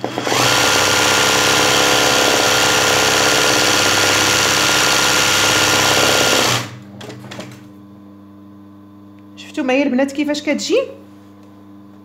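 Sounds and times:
sewing machine running fast: 0.0s - 6.8s.

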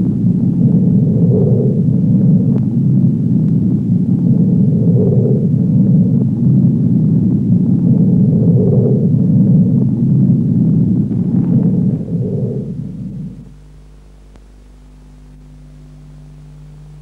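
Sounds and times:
loud low rumble: 0.0s - 17.0s
faint clicks: 2.5s - 2.7s.

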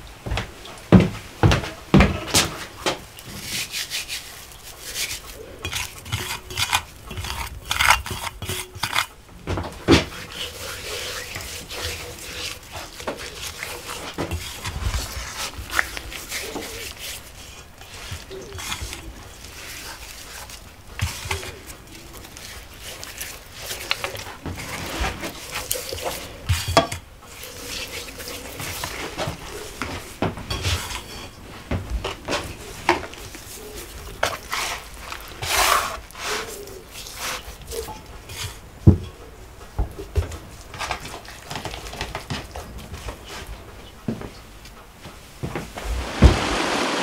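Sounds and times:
scraping rustle: 1.1s - 44.5s, 45.1s - 47.0s
metal tray and cutlery clinking: 5.6s - 9.1s, 30.5s - 31.4s.

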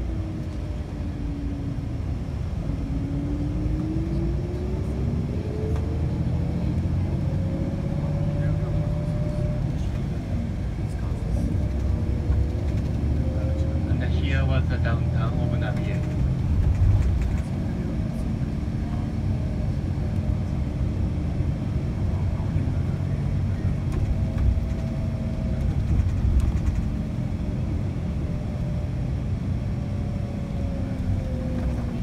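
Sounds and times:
car road noise inside cabin: 0.0s - 32.0s.

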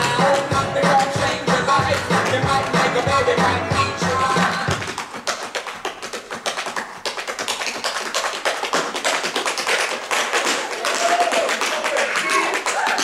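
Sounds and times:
tap shoes on stage floor: 0.0s - 3.5s, 4.3s - 13.0s
music with heavy bass: 0.0s - 4.9s.

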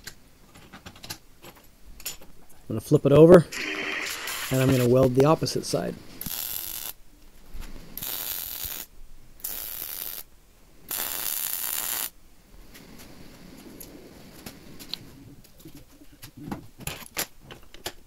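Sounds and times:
welder arc crackling and hissing: 3.5s - 7.0s, 7.7s - 10.3s, 10.9s - 15.0s.

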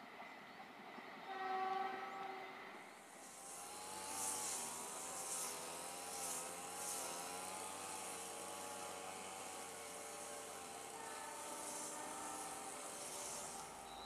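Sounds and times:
distant engine drone: 2.2s - 14.0s
high hiss: 2.9s - 14.0s.

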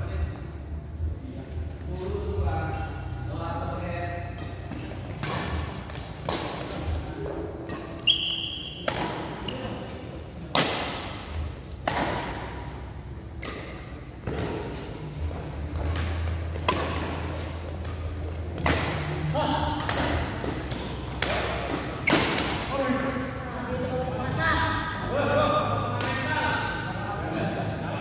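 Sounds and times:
racket hitting shuttlecock: 4.4s - 7.0s, 7.6s - 9.6s, 10.5s - 12.8s, 13.4s - 15.0s, 15.7s - 22.7s
shoe squeaking on court: 7.7s - 10.0s, 21.8s - 22.6s.

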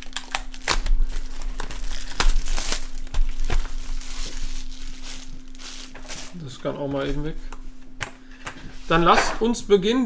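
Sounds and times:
plastic wrapping crinkling and tearing: 0.0s - 6.9s.

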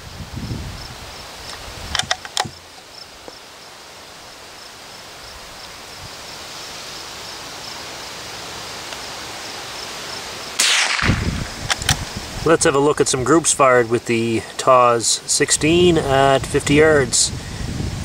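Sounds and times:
insects chirping: 0.0s - 18.0s
soft hiss: 0.0s - 18.0s
rifle bolt metallic clicks: 1.9s - 2.6s, 10.6s - 12.0s.

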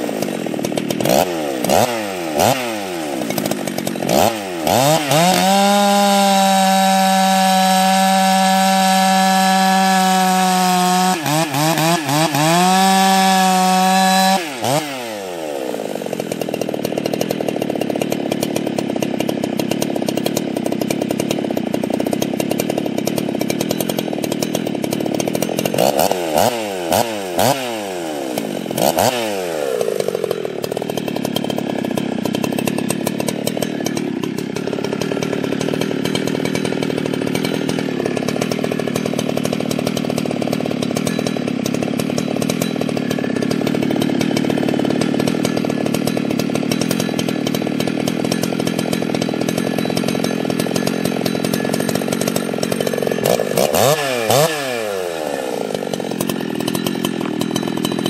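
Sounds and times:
chainsaw revving and cutting wood: 0.0s - 58.0s.

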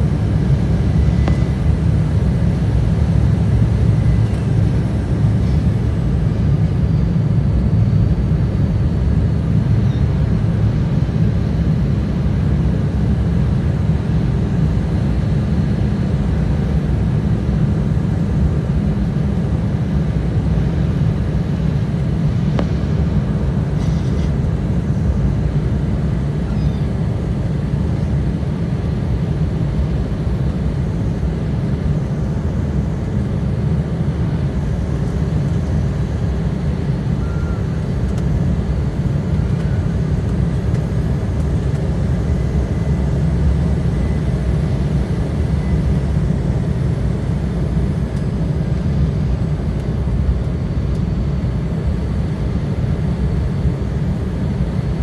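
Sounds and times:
airliner cabin engine rumble: 0.0s - 55.0s.

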